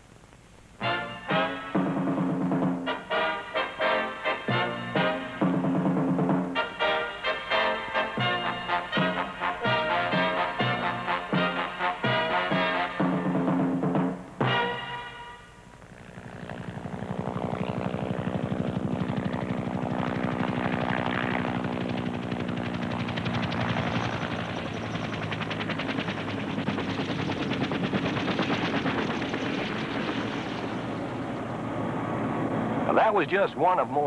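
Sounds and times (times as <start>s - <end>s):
helicopter engine tone: 1.0s - 34.0s
helicopter rotor chopping: 15.7s - 34.0s.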